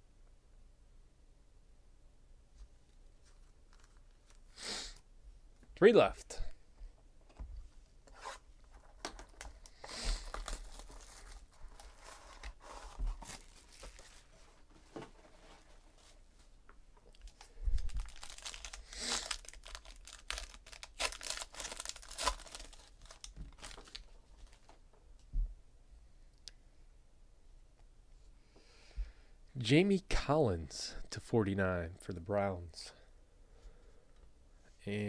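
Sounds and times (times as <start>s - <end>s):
foil wrapper tearing and crinkling: 9.4s - 14.2s, 17.1s - 24.6s.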